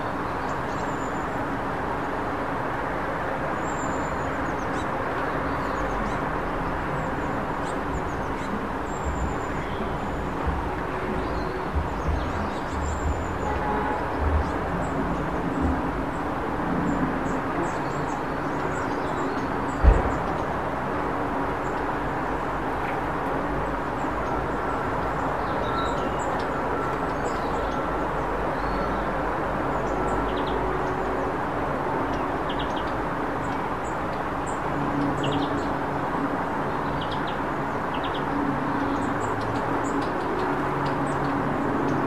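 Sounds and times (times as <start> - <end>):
small birds chirping: 3.6 - 16.3.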